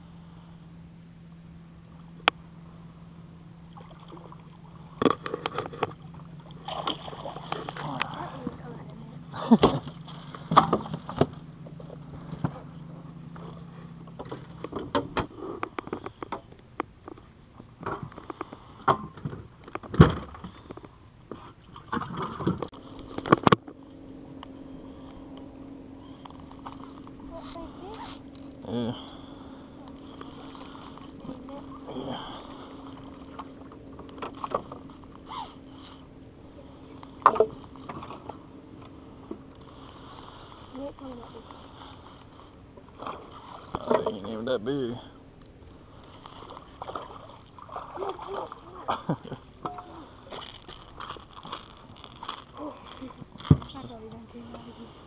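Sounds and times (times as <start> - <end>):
low steady hum: 0.0 - 55.0
fishing gear clicking and rattling: 5.0 - 9.0, 9.6 - 12.7, 13.3 - 17.3, 21.9 - 23.8, 26.2 - 29.2, 29.8 - 36.1, 45.4 - 54.2
fishing reel being cranked: 26.6 - 28.8, 50.0 - 53.8.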